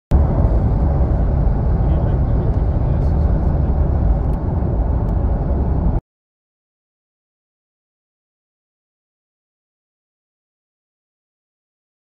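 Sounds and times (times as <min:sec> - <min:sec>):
road and wind noise: 0:00.1 - 0:06.0.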